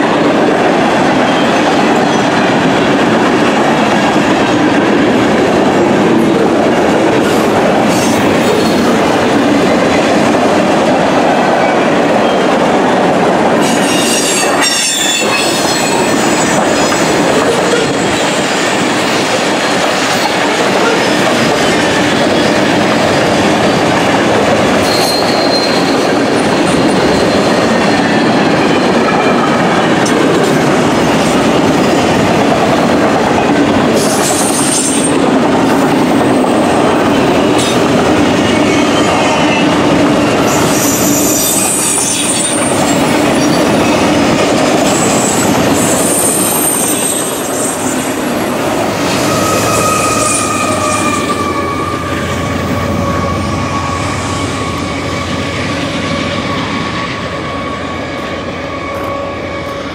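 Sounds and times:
train wheels rumbling on rails: 0:00.0 - 0:59.9
high-pitched wheel squeals: 0:24.8 - 0:26.1, 0:49.1 - 0:55.6.

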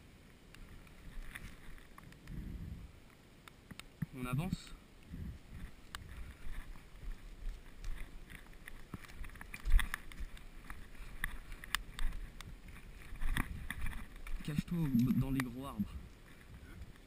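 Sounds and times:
clothing and gear rustling: 0:00.6 - 0:02.8, 0:05.1 - 0:17.0
footsteps crunching on forest floor: 0:05.4 - 0:16.7.

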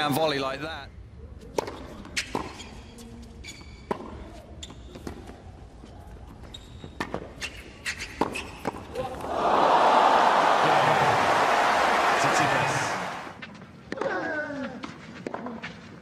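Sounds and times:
shoes squeaking on court: 0:01.6 - 0:09.0.

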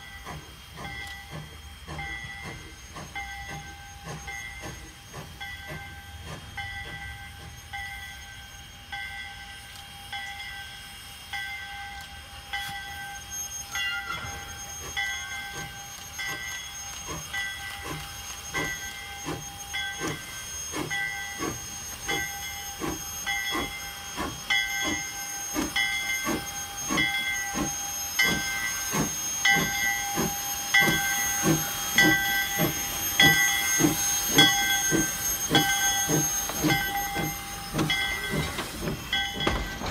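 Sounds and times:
steam locomotive chuffing: 0:00.0 - 0:39.9
bell ringing: 0:12.6 - 0:16.7, 0:33.2 - 0:39.9.

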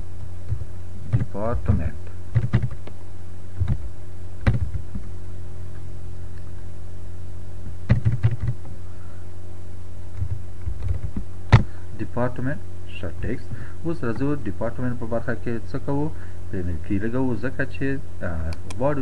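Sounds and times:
low electrical hum: 0:00.0 - 0:19.0
computer keyboard key presses: 0:02.4 - 0:02.9, 0:04.4 - 0:05.0, 0:07.9 - 0:08.6.

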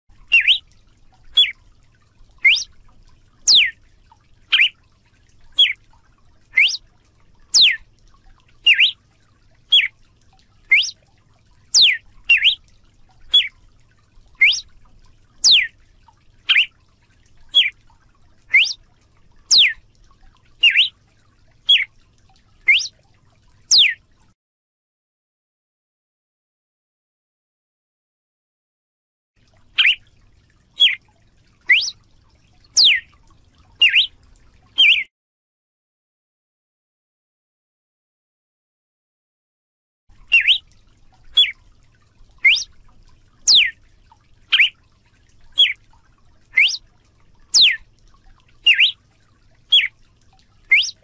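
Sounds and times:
bird singing sweeping notes: 0:00.3 - 0:00.6, 0:02.4 - 0:02.7, 0:03.5 - 0:03.7, 0:04.5 - 0:04.7, 0:05.6 - 0:05.8, 0:06.6 - 0:06.8, 0:07.5 - 0:07.8, 0:08.6 - 0:09.0, 0:09.7 - 0:09.9, 0:10.7 - 0:11.0, 0:11.8 - 0:12.6, 0:14.4 - 0:14.6, 0:15.4 - 0:15.7, 0:16.5 - 0:16.7, 0:18.5 - 0:18.8, 0:19.5 - 0:19.8, 0:20.6 - 0:20.9, 0:21.7 - 0:21.9, 0:22.7 - 0:22.9, 0:23.7 - 0:24.0, 0:29.8 - 0:30.0, 0:30.8 - 0:31.0, 0:31.7 - 0:32.0, 0:32.8 - 0:33.0, 0:33.8 - 0:34.1, 0:34.8 - 0:35.1, 0:40.3 - 0:40.6, 0:42.4 - 0:42.7, 0:43.5 - 0:43.7, 0:44.5 - 0:44.7, 0:45.6 - 0:45.8, 0:46.6 - 0:46.8, 0:47.5 - 0:47.8, 0:48.7 - 0:49.0, 0:49.7 - 0:49.9, 0:50.7 - 0:51.0.

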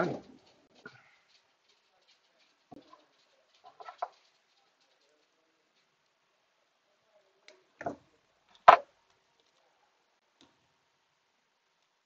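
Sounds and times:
small objects clicking and knocking: 0:00.1 - 0:06.2.

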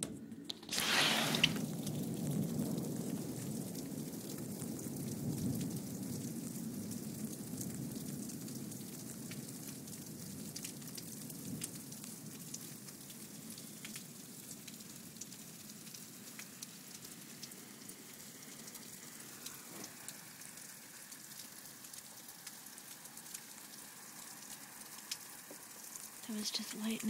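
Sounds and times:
precipitation hissing on surfaces: 0:00.7 - 0:01.6, 0:18.4 - 0:21.0.

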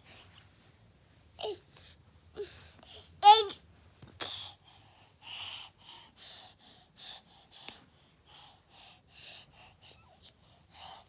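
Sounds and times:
baby panting and gasping: 0:04.6 - 0:11.0.

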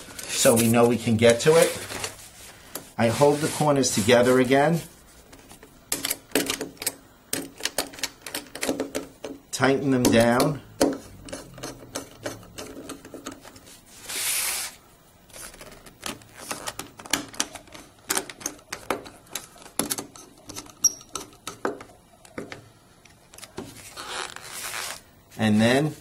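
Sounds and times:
scraping rustle: 0:00.1 - 0:05.2, 0:23.6 - 0:25.8.

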